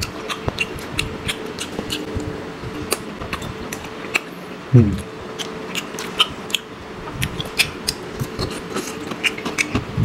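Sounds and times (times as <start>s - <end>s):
chewing with mouth clicks: 0.0s - 9.9s.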